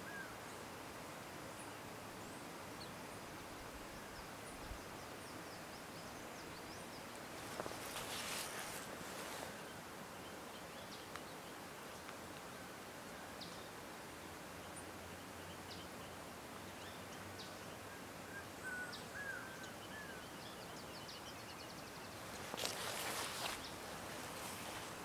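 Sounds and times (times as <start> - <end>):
steady hiss: 0.0 - 25.0
rustling noise: 7.3 - 9.6, 22.2 - 25.0
small birds calling: 14.6 - 25.0.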